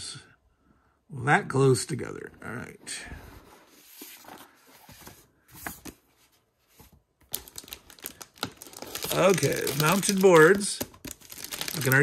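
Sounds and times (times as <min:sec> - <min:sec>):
paper rustling: 0:03.3 - 0:12.0
plastic bag crinkling: 0:07.3 - 0:12.0.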